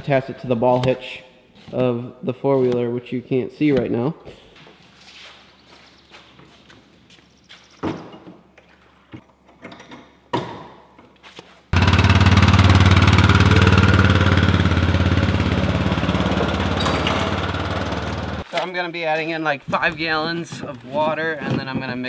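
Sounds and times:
atv engine running: 11.8s - 18.4s.

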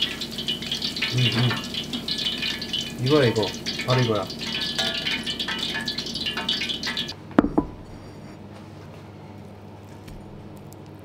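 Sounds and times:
hot oil sizzling and crackling: 0.0s - 7.2s
plate set down on counter: 7.4s - 7.9s
sharp knocks: 7.4s - 7.9s.

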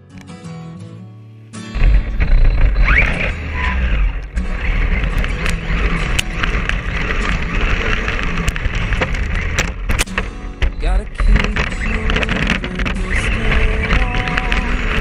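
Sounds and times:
motor whine: 1.8s - 10.4s
chassis rattles and knocks: 1.8s - 15.0s
toy truck rumble: 1.8s - 15.0s.

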